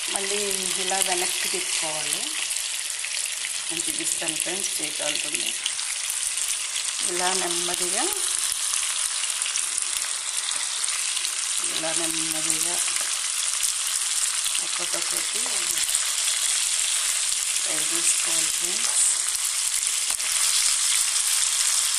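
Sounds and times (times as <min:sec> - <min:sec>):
fish frying in hot oil: 0:00.0 - 0:21.9.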